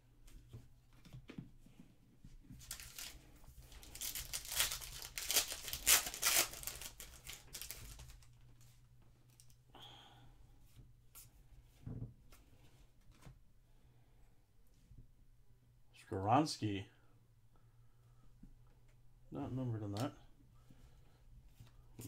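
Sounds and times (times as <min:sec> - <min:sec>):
foil wrapper tearing and crinkling: 0:02.6 - 0:03.2, 0:03.8 - 0:08.3.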